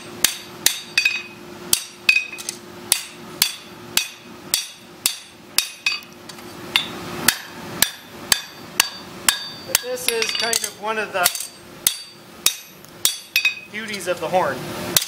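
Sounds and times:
hammer striking anvil with metallic ring: 0.0s - 6.1s, 6.8s - 14.0s.

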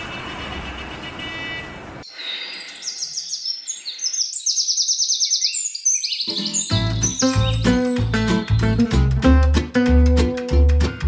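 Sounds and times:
outdoor traffic hum: 0.0s - 2.2s
songbirds chirping and trilling: 0.0s - 8.8s.

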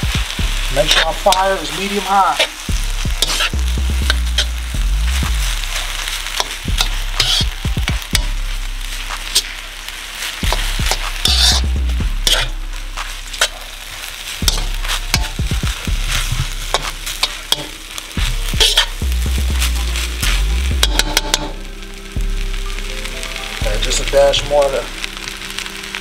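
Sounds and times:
rice sizzling in a wok: 0.0s - 26.0s
metal spoon scraping a wok: 2.3s - 4.6s, 5.5s - 19.0s, 19.6s - 21.6s.

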